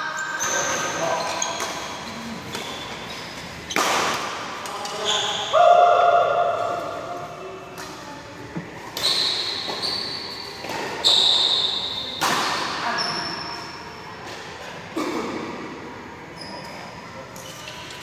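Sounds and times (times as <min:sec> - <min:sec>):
shuttlecock hit by rackets: 0:03.7 - 0:04.4.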